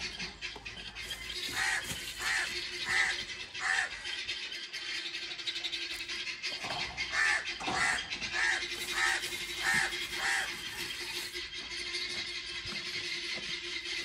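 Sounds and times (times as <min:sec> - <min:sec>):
crow cawing: 0:01.4 - 0:04.0, 0:07.1 - 0:10.6.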